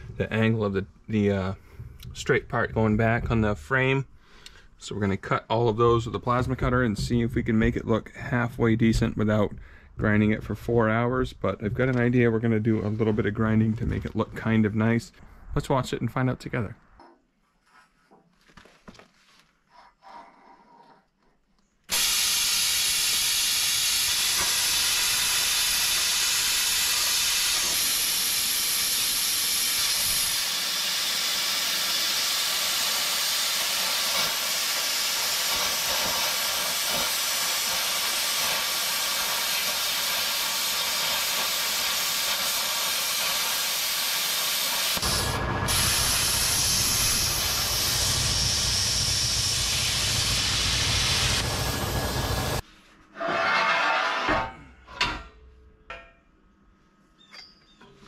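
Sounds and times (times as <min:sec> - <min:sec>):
plasma cutter hissing: 0:21.9 - 0:52.6.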